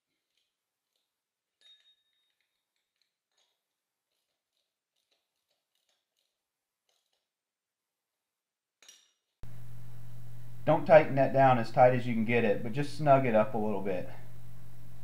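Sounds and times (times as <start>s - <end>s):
oil filter threading scrapes: 0.0s - 1.2s, 2.2s - 7.3s.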